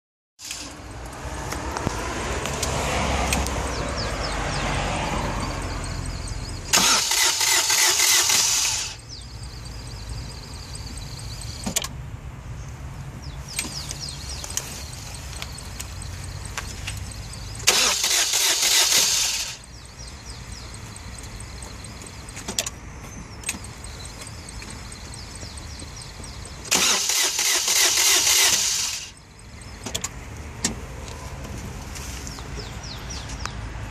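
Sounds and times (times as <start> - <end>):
diesel car engine running: 0.4 - 33.9.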